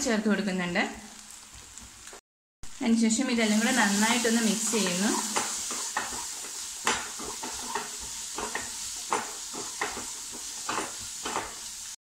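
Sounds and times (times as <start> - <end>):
masala sizzling: 0.0 - 12.0
wooden spatula scraping a pan: 3.6 - 11.9.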